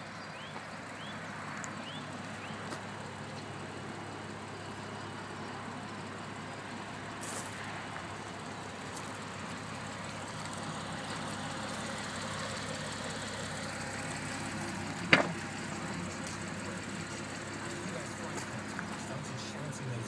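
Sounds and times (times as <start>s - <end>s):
car engine idling: 0.0s - 20.0s
car door clunk: 15.0s - 15.4s.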